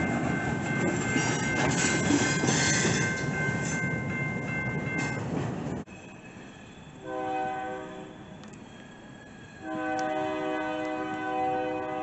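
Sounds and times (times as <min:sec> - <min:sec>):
low train rumble: 0:00.0 - 0:12.0
locomotive air horn: 0:07.0 - 0:08.2, 0:09.6 - 0:12.0.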